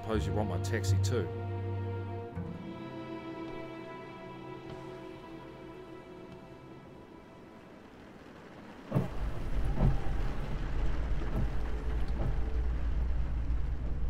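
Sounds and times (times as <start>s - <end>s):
tyres and rain hissing: 2.5s - 14.0s
car driving rumble: 8.4s - 14.0s.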